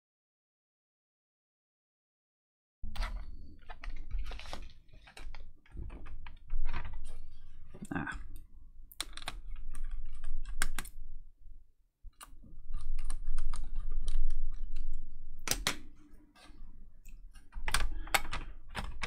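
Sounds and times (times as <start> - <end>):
plastic laptop cover clicking: 12.2 - 15.9, 17.5 - 19.0.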